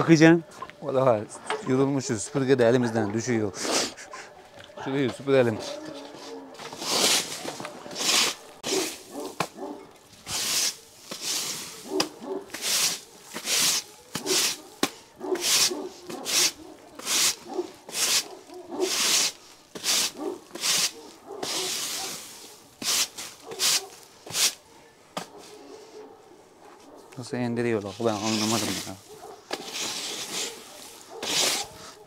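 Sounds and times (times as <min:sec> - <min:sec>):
broom sweeping floor: 0:06.0 - 0:24.6, 0:27.8 - 0:32.0.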